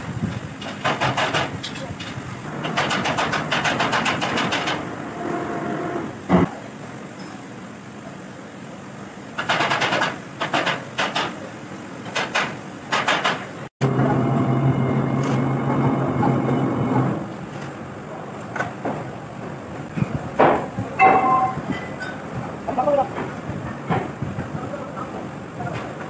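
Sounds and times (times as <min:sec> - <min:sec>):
steady machine hum: 0:13.8 - 0:18.3.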